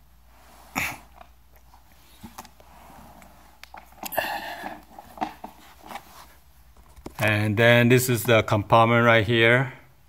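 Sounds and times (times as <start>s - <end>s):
plastic case scraping: 2.1s - 7.2s.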